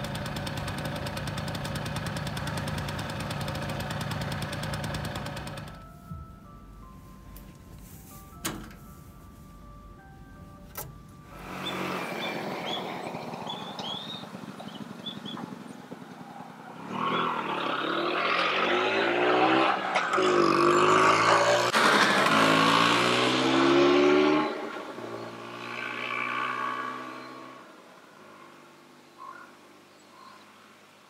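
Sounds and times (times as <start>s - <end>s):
scooter engine approaching: 0.0s - 5.9s, 11.2s - 28.7s.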